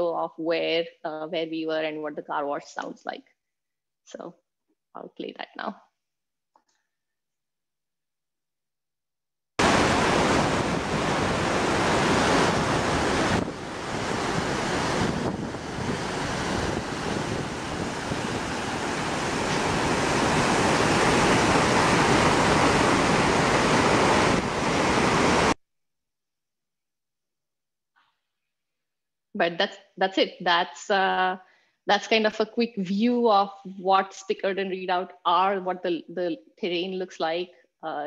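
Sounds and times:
waterfall rushing: 9.6 - 25.6.

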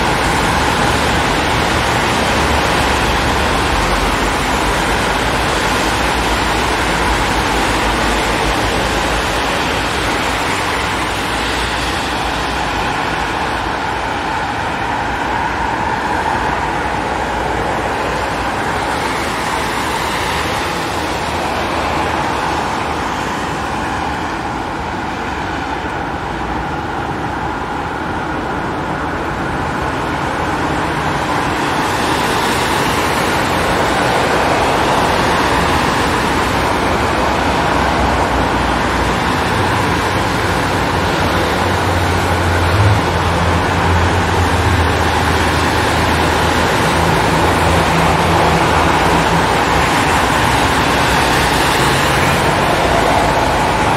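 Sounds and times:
car engines: 0.0 - 53.9.

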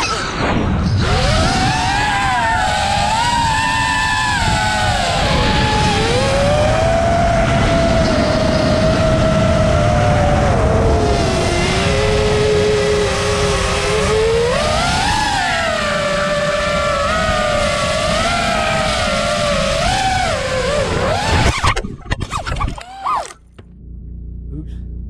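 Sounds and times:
drone motors whining: 0.0 - 24.6.

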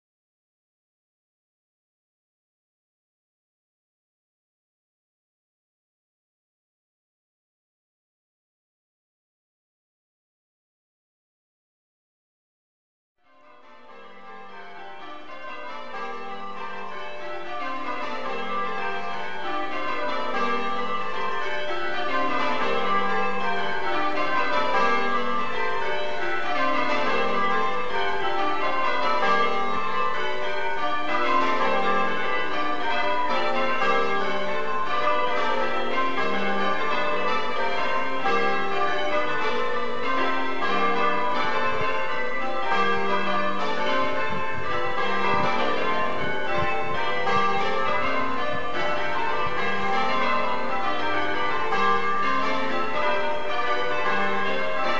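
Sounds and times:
church bells ringing: 13.2 - 54.9.

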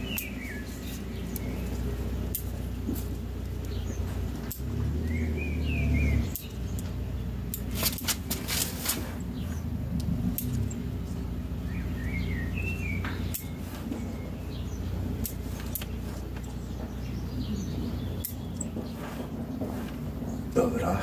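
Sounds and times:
scissors snipping twigs: 0.0 - 5.2, 6.2 - 9.1, 10.0 - 11.2, 12.8 - 14.1, 15.2 - 17.0, 17.6 - 18.8
small bird chirping: 0.0 - 20.9
low background rumble: 0.0 - 21.0.

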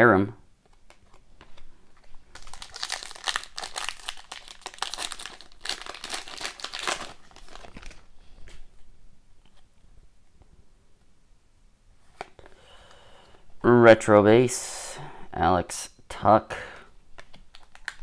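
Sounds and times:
cards being handled: 0.6 - 8.8, 17.1 - 18.0
foil wrapper crinkling and tearing: 2.3 - 8.1.

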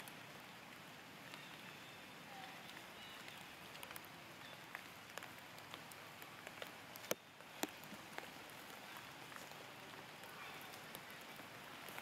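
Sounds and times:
faint steady hiss: 0.0 - 12.0
sharp clicks and crackles: 4.7 - 9.6.

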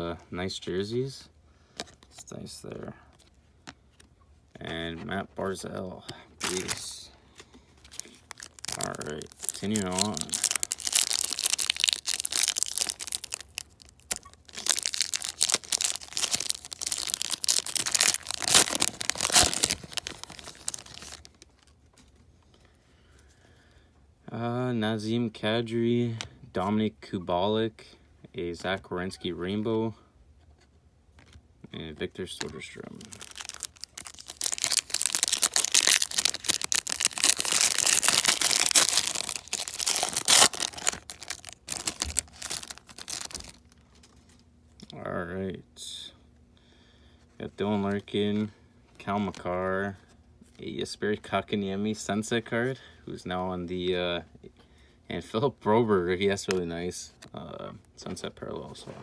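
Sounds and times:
foil wrappers tearing and crinkling: 6.4 - 7.0, 7.9 - 21.7, 32.9 - 43.8.

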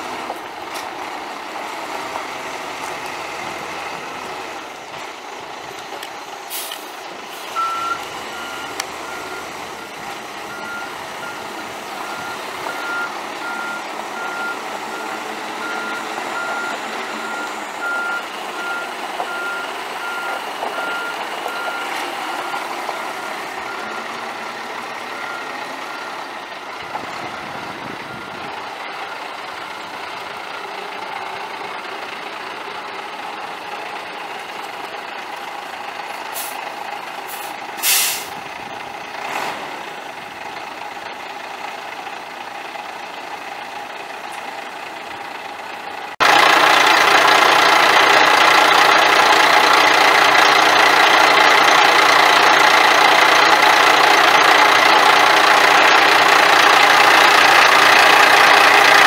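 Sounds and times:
diesel truck engine idling: 0.0 - 59.0
air brake hisses: 6.5 - 7.5, 36.3 - 36.6, 37.3 - 38.4
backup alarm beeping: 7.6 - 21.9.

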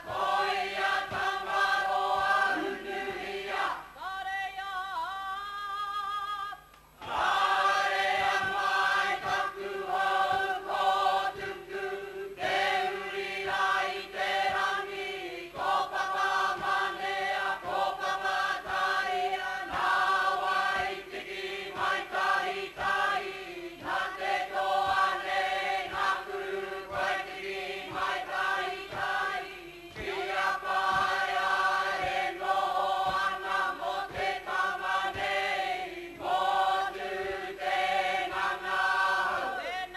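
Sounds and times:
group singing with women leading: 0.0 - 39.9.

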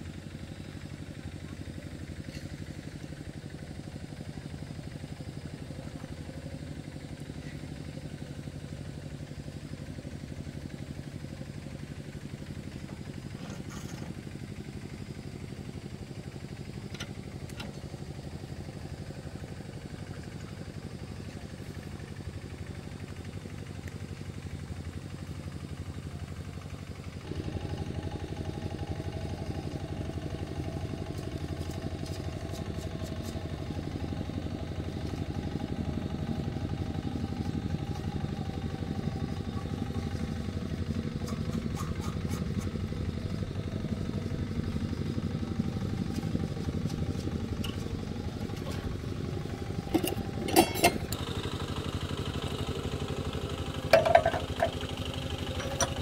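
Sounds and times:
diesel tractor engine running: 0.0 - 56.0
sharp metallic clanks: 49.9 - 51.2, 53.9 - 54.8.

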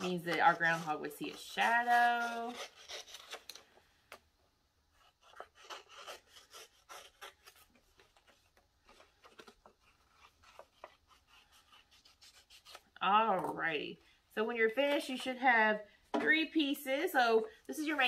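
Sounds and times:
paper rustling: 5.2 - 12.9.

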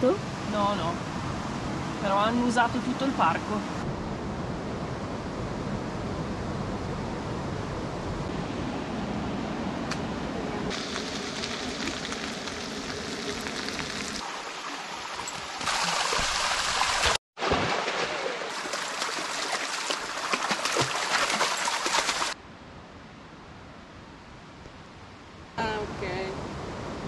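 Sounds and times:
food sizzling in a frying pan: 10.7 - 14.2
stream running over rocks: 10.7 - 22.4.

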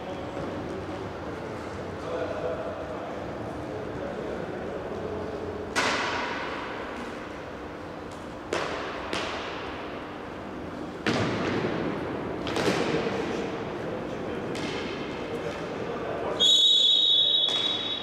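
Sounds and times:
hockey stick hitting ball: 5.7 - 6.6, 8.5 - 9.7, 11.0 - 13.1, 14.5 - 15.0, 17.4 - 17.9.

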